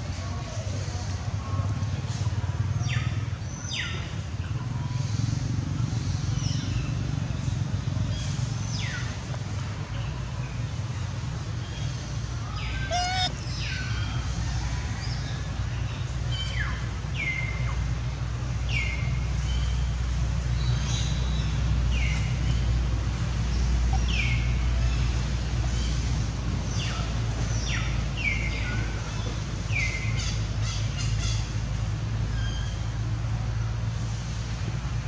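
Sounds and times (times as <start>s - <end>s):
birds whistling: 12.8s - 13.8s.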